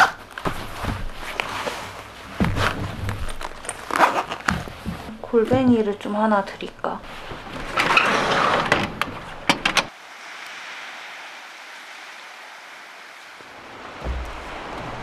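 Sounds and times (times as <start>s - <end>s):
door clicks and knocks: 7.8s - 9.9s
distant sea surf: 9.0s - 15.0s.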